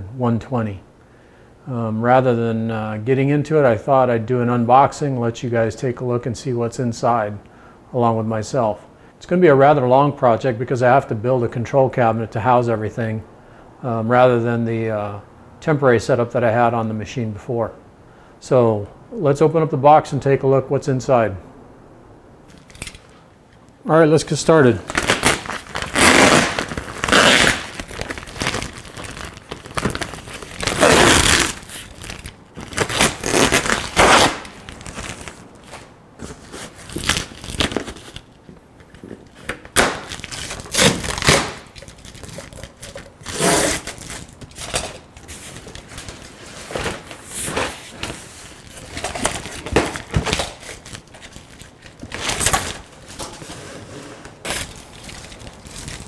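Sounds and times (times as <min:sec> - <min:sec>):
plastic wrap crinkling and tearing: 0:24.7 - 0:38.3, 0:39.6 - 0:53.4, 0:54.4 - 0:56.0
tape ripping: 0:24.8 - 0:38.3, 0:39.4 - 0:53.4, 0:54.4 - 0:56.0
utility knife slitting tape: 0:25.0 - 0:27.7, 0:32.8 - 0:34.6, 0:39.8 - 0:41.9
cardboard scraping and thumping: 0:43.3 - 0:50.8.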